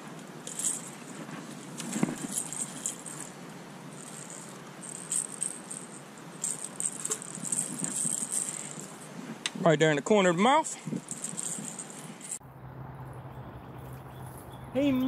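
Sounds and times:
fishing tackle jangling and clicking: 0:00.4 - 0:09.2, 0:10.4 - 0:12.4.

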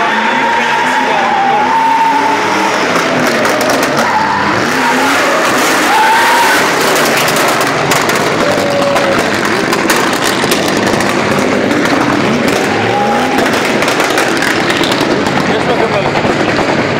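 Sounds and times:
tyres squealing on asphalt: 0:00.0 - 0:16.6
car engine revving hard: 0:00.0 - 0:16.9
sharp exhaust pops: 0:06.6 - 0:16.9.

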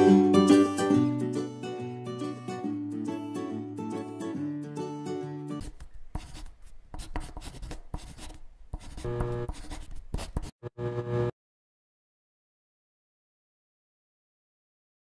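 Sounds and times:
plucked string music: 0:00.0 - 0:05.6
pen scratching on paper: 0:05.6 - 0:10.6.

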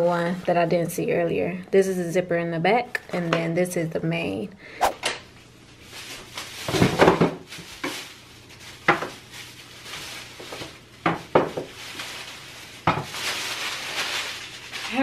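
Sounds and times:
faint steady hum: 0:00.0 - 0:06.6.

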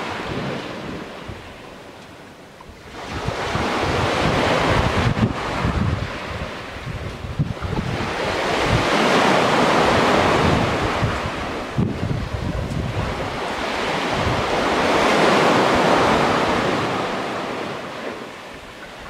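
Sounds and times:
waves on pebble shore: 0:00.0 - 0:01.8, 0:02.8 - 0:19.0
wind buffeting microphone: 0:00.0 - 0:19.0.

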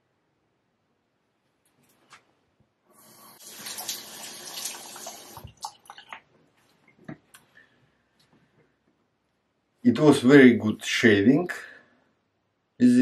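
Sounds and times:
tap water running into sink: 0:03.3 - 0:06.2
water splashes: 0:03.4 - 0:06.3.

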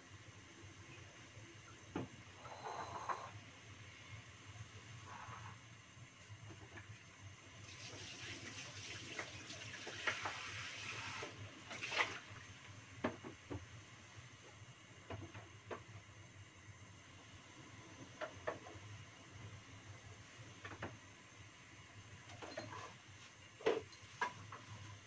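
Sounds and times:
kitchen tap running: 0:07.6 - 0:12.4.

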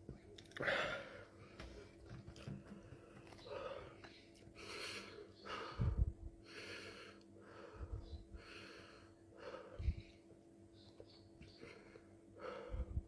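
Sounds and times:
man breathing heavily: 0:00.6 - 0:02.0, 0:02.9 - 0:10.3, 0:11.5 - 0:13.0.

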